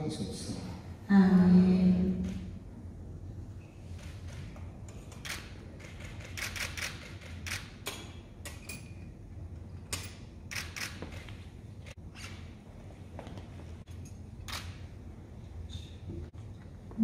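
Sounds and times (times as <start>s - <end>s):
low steady hum: 0.0s - 6.3s
camera shutters clicking: 5.1s - 7.8s, 10.5s - 11.4s.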